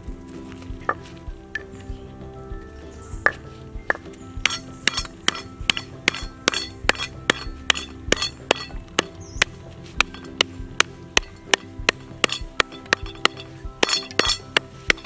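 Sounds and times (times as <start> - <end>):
wooden pestle pounding on board: 4.4 - 15.0.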